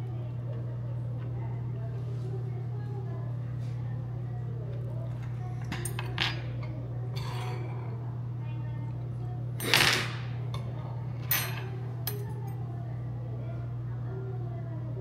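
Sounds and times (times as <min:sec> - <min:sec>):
steady low hum: 0:00.0 - 0:15.0
utensils clinking against bowl: 0:05.1 - 0:08.0, 0:09.6 - 0:12.6.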